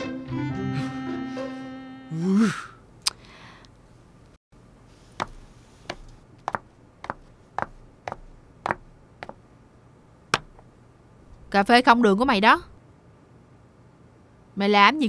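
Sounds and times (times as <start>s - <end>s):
background music: 0.0s - 2.1s
man groaning: 2.1s - 2.8s
footsteps on hard floor: 5.2s - 9.4s.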